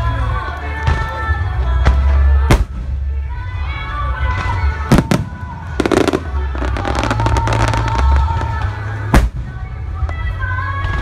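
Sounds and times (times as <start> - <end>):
music playing: 0.0 - 11.0
fireworks crackling: 4.2 - 11.0
firework bangs: 4.4 - 9.6.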